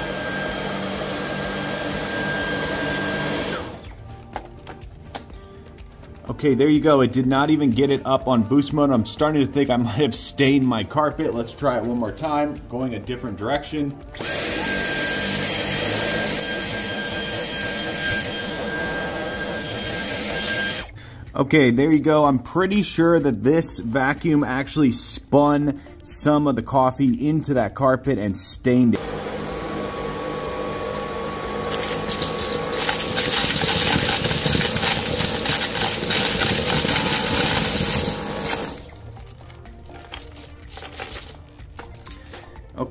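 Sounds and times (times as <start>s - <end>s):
vacuum cleaner motor whine: 0.0s - 4.0s, 14.1s - 20.9s, 29.0s - 38.9s
debris being sucked up: 31.7s - 39.0s.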